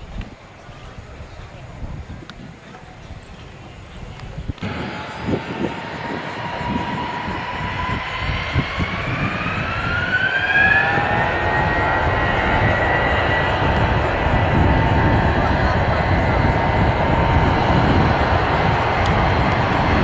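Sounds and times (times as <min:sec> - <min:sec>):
noisy rumble: 0:04.2 - 0:20.0
jet engines whining: 0:04.5 - 0:20.0.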